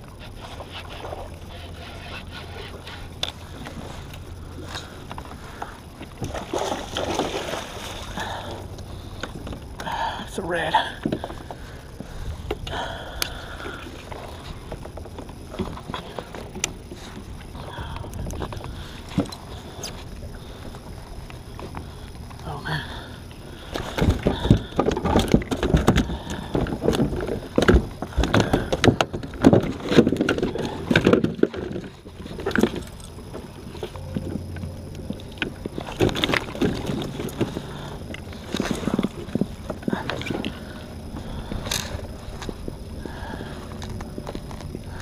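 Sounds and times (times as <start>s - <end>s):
knocks and bumps on a kayak: 23.8s - 32.9s.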